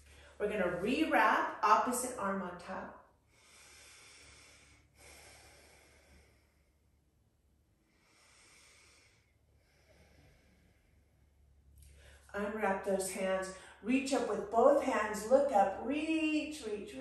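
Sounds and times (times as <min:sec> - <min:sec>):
breathing through the nose: 0:03.3 - 0:06.8, 0:07.9 - 0:11.2.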